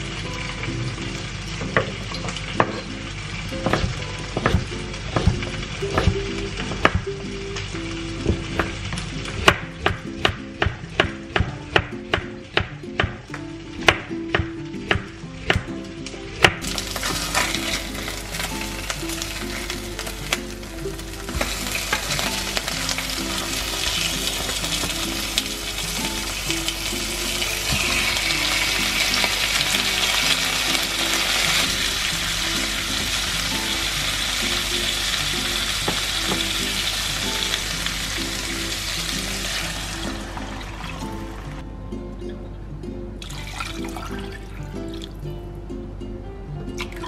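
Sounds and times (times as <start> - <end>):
vegetables sizzling in oil: 0.0 - 41.6
water poured into pan: 16.6 - 35.0, 38.1 - 41.6.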